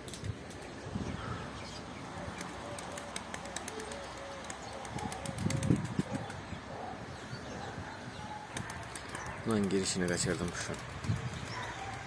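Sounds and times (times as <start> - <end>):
pigeons cooing: 1.2 - 12.0
wing flapping: 2.2 - 6.4, 8.5 - 12.0.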